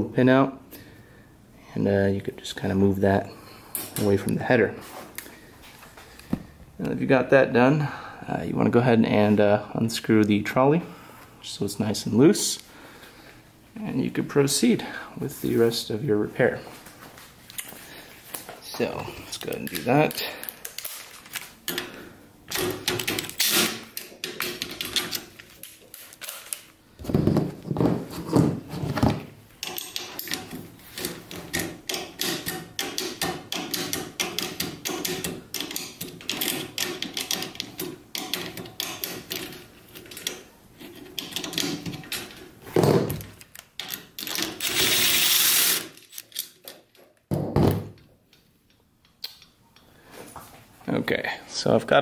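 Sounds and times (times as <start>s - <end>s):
metal clicks and knocks: 31.3s - 42.4s
impact driver running: 44.6s - 45.9s.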